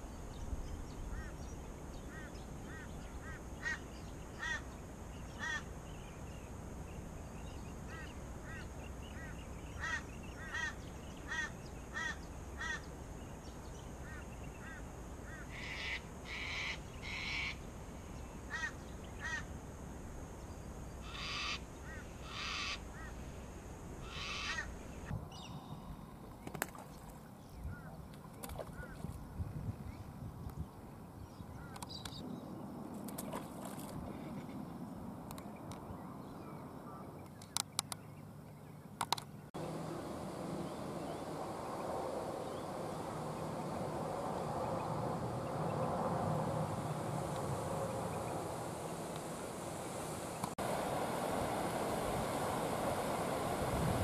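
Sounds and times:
birds calling: 0.9s - 6.5s, 7.2s - 17.6s, 21.0s - 23.2s, 24.0s - 29.2s
harsh rasping bird calls: 2.1s - 4.7s, 5.3s - 5.7s, 7.9s - 12.9s, 14.0s - 17.6s, 18.5s - 19.5s, 21.0s - 23.2s, 24.0s - 25.5s.

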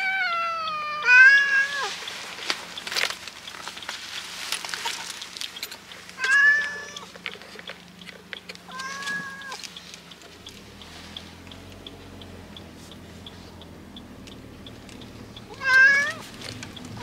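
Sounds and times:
cat meowing: 0.0s - 1.9s, 6.2s - 7.1s, 8.7s - 9.6s, 15.5s - 16.2s
clicks and rustling: 1.8s - 11.9s, 15.7s - 17.0s.

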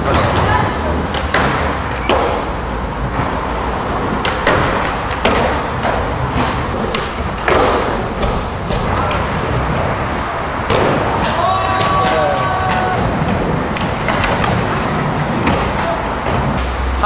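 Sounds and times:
skateboard clacks and landings: 0.0s - 16.8s
skateboards rolling on concrete: 0.0s - 17.0s.

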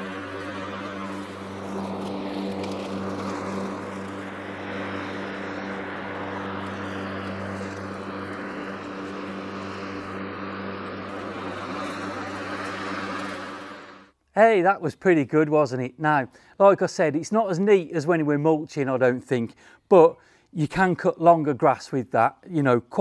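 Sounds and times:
electric lawnmower humming: 0.0s - 14.2s
grass being cut and blown out: 0.0s - 14.2s.

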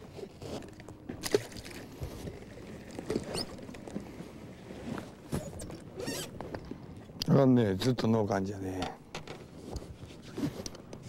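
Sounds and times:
water lapping against boat hull: 0.0s - 7.2s
brief squeak: 5.3s - 6.3s.

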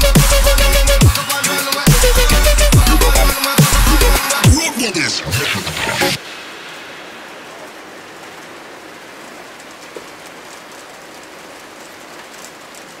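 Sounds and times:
rain on a metal table and grass: 6.2s - 13.0s
loud raindrop on metal: 6.7s - 13.0s.

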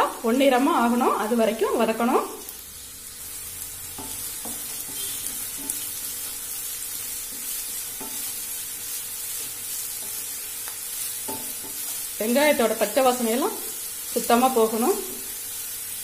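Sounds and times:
onion sizzling in hot oil: 0.0s - 16.0s
wooden spatula scraping a pan: 3.9s - 12.2s.

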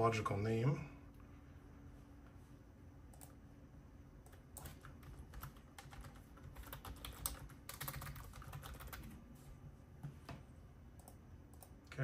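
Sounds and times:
keyboard typing: 4.2s - 9.2s.

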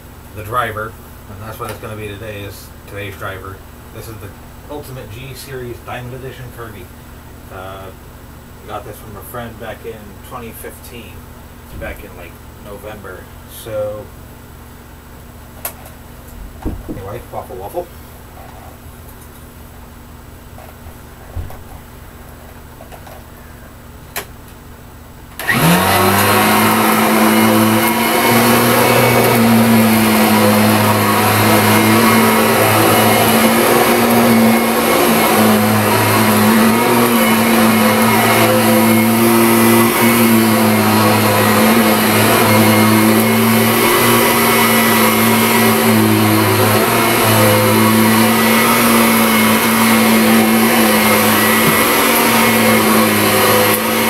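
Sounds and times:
vacuum cleaner motor running: 25.4s - 54.0s.

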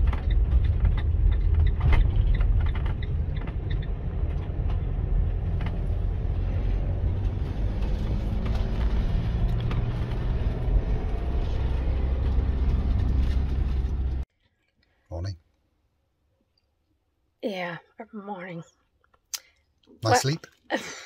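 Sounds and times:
engine and road rumble: 0.0s - 14.3s.

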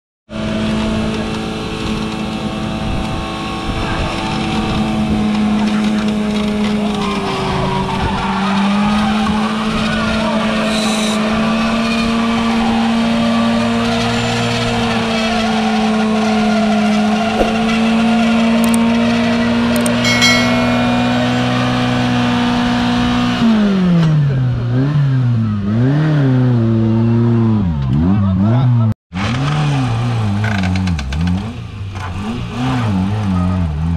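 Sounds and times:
off-road vehicle engine revving: 23.0s - 33.9s.

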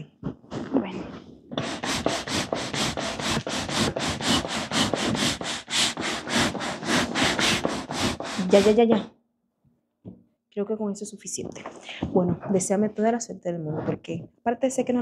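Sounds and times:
hand air pump hissing strokes: 1.6s - 9.0s.

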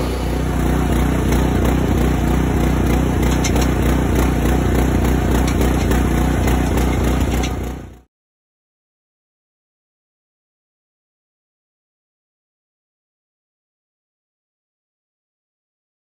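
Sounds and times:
hydraulics running: 0.0s - 8.0s
log deck chains low pulsing: 0.0s - 8.0s.

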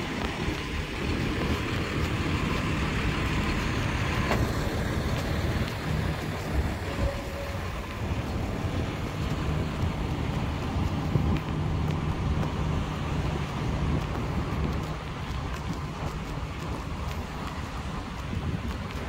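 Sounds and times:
road traffic rumble: 0.0s - 19.0s
wind buffeting microphone: 0.0s - 19.0s.

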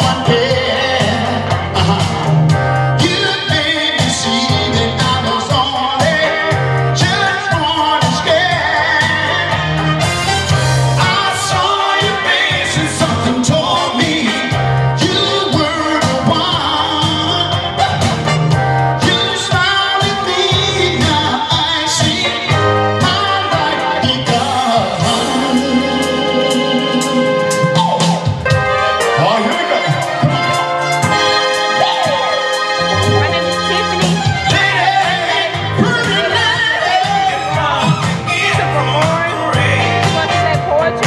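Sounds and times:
man singing into microphone: 0.0s - 9.8s, 11.0s - 18.2s, 19.0s - 28.4s, 31.6s - 41.0s
backing track with bass and drums: 0.0s - 41.0s.

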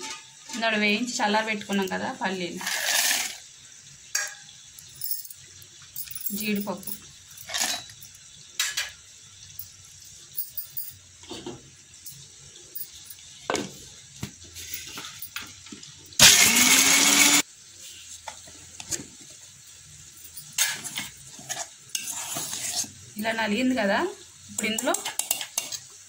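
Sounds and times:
mixer grinder whirring: 16.2s - 17.4s.

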